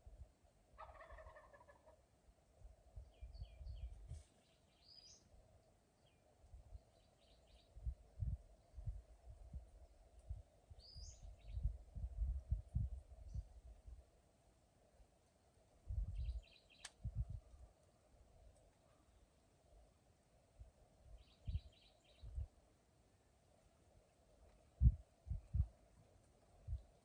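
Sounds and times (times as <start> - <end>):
turkey gobbling: 0.8 - 2.0
small birds chirping: 3.0 - 5.3, 6.0 - 7.8, 10.8 - 11.7, 16.1 - 17.0, 21.1 - 22.4
low rumbling on microphone: 7.7 - 14.0, 15.9 - 16.4, 17.0 - 17.6, 24.8 - 25.8.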